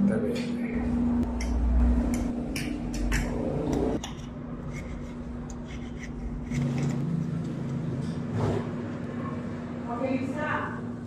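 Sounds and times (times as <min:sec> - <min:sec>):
cutlery scraping on a plate: 0:04.0 - 0:07.1.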